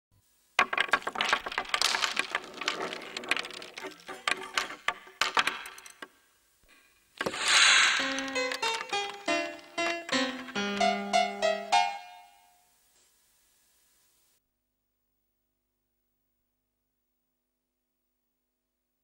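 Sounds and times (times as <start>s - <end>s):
wooden blocks clattering: 0.6s - 6.3s, 7.1s - 10.9s
musical logo sting: 7.4s - 12.0s.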